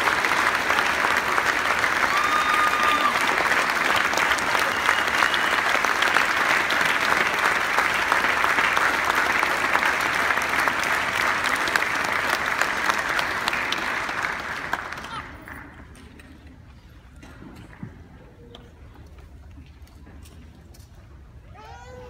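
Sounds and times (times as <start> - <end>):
large audience applauding: 0.0 - 15.9.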